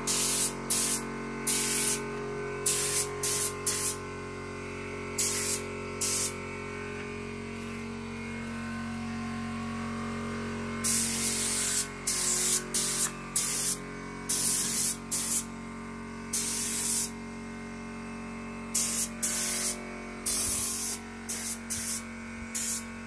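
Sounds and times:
paint spray gun hissing: 0:00.0 - 0:04.0, 0:05.2 - 0:06.4, 0:10.8 - 0:15.5, 0:16.3 - 0:17.2, 0:18.7 - 0:23.0
steady low hum: 0:00.0 - 0:23.0.

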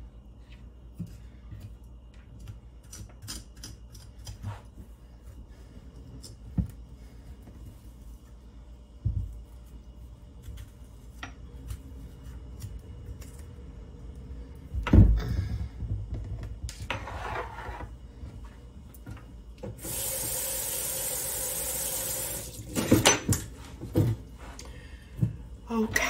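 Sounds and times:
water running from tap: 0:19.8 - 0:22.9.

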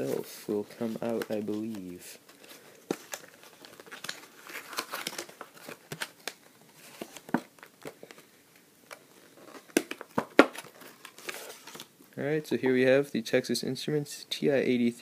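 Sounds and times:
plastic packaging crinkling: 0:00.6 - 0:08.2.

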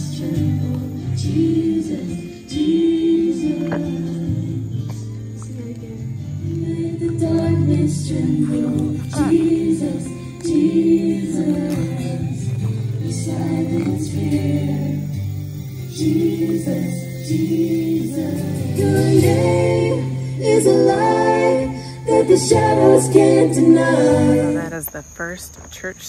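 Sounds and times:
voices singing together: 0:00.0 - 0:24.8
guitars: 0:00.0 - 0:25.0.

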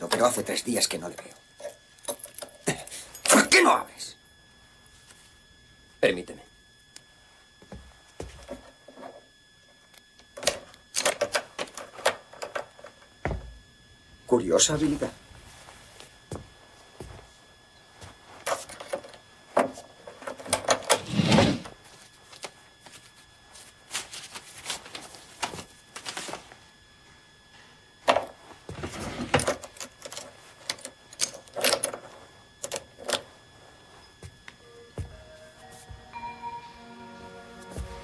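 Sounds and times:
papers rustling: 0:21.9 - 0:26.6.

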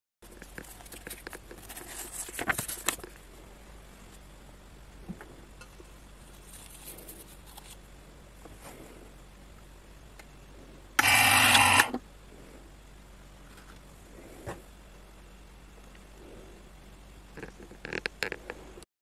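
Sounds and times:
label machine glue roller rasping: 0:11.0 - 0:12.0.

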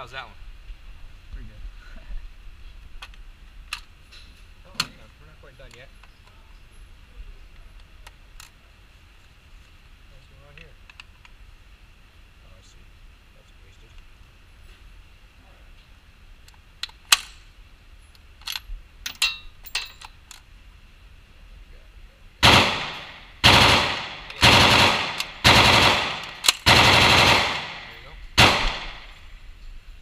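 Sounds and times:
gun handling clicks: 0:03.0 - 0:05.0, 0:07.5 - 0:08.6, 0:10.8 - 0:11.4, 0:16.4 - 0:17.4, 0:18.1 - 0:20.5, 0:22.8 - 0:26.8
rifle shots echoing indoors: 0:22.4 - 0:29.3.

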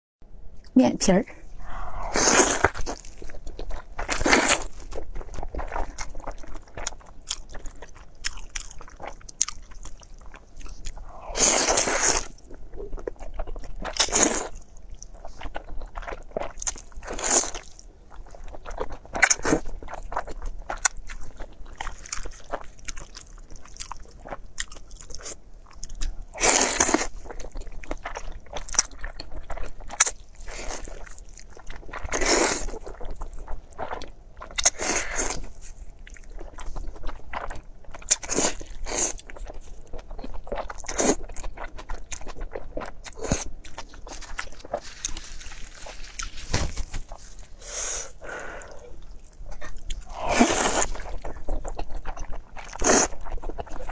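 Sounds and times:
noodle slurping: 0:01.7 - 0:03.1, 0:50.0 - 0:52.0
wet chewing and smacking: 0:02.4 - 0:53.9.

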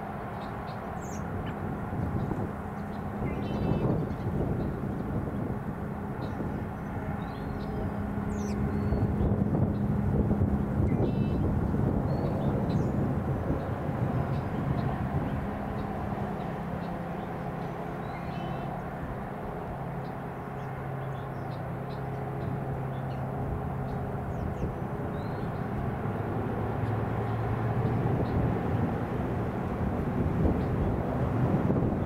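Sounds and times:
distant engine drone: 0:00.0 - 0:32.0.

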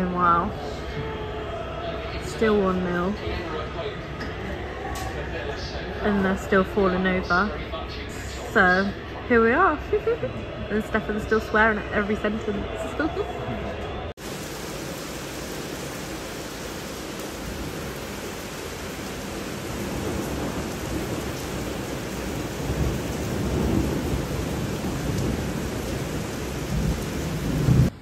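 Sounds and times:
heavy rain hissing: 0:14.1 - 0:28.0
low thunder rumbling: 0:14.2 - 0:28.0.

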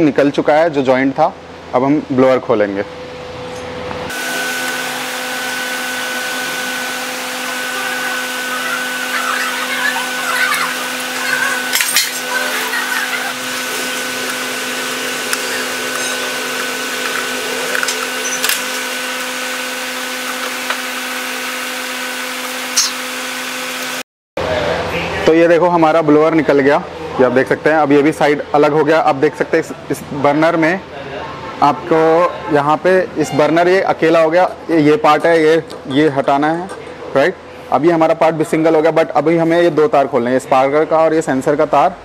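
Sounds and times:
machine hum: 0:02.7 - 0:25.4.

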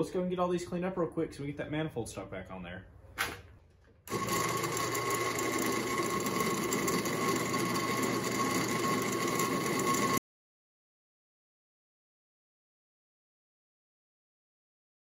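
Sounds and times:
drill press motor whine: 0:04.1 - 0:10.2.

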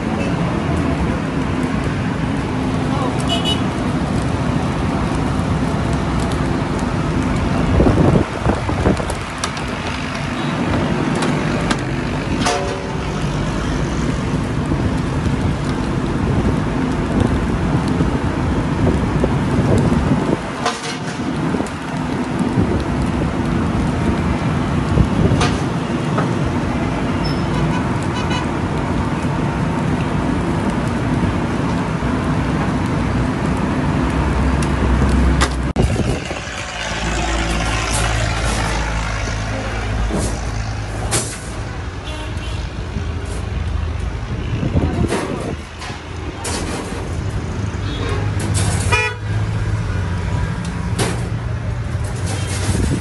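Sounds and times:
street traffic: 0:00.0 - 0:53.0
car horn: 0:03.3 - 0:03.7, 0:42.0 - 0:42.6, 0:48.8 - 0:49.3.

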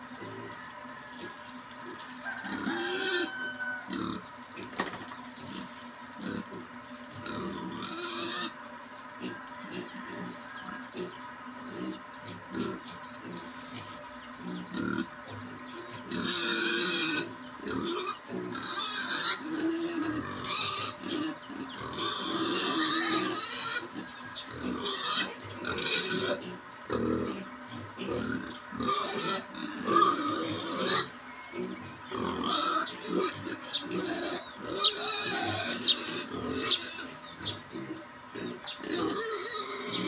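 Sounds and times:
young pigs grunting and oinking: 0:00.0 - 0:40.0.

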